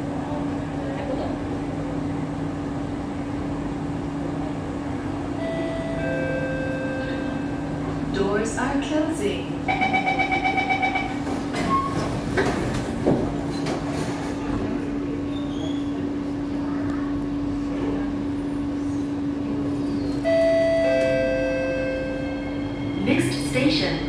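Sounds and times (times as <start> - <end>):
train humming at rest: 0.0 - 24.0
door-closing chime beeping: 9.7 - 12.0.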